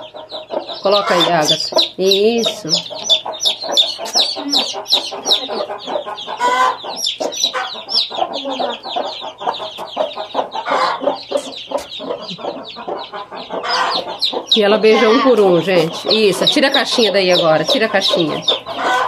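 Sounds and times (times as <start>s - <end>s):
chicks peeping: 0.0s - 19.0s
hen clucking: 0.0s - 19.0s.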